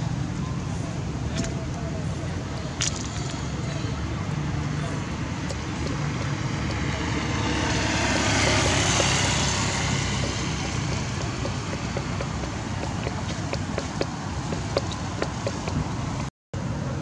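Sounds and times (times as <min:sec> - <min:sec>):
road traffic rumble: 0:00.0 - 0:17.0
vehicle passing: 0:03.3 - 0:16.3.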